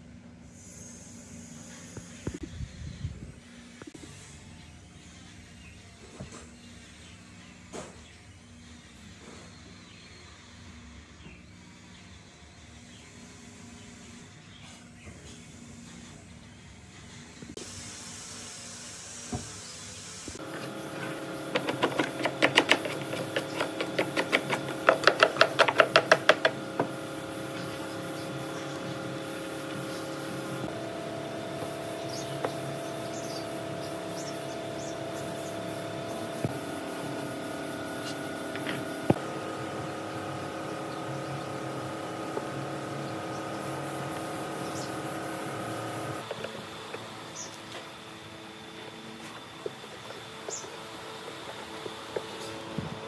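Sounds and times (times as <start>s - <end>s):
hand tool strokes on wood: 20.4s - 30.6s.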